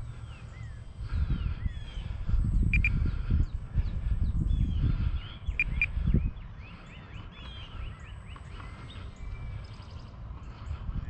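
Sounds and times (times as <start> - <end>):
small birds chirping: 0.0 - 11.0
whistled bird notes: 2.6 - 3.1.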